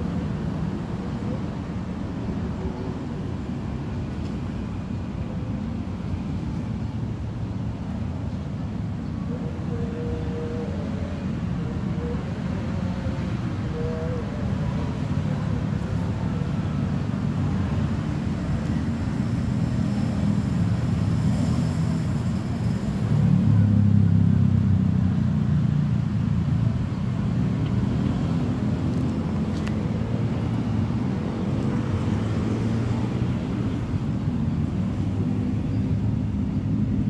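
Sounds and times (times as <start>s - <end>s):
vehicle engine rumbling: 0.0s - 37.0s.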